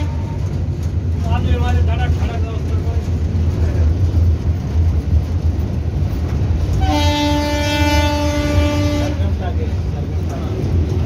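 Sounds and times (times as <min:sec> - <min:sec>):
locomotive horn blast: 0:00.0 - 0:00.6, 0:06.7 - 0:09.4
locomotive running rumble: 0:00.0 - 0:11.0.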